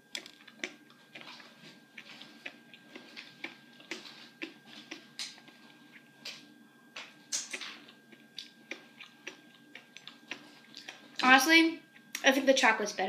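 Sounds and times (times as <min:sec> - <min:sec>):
wet chewing and mouth clicks: 0:00.0 - 0:12.3.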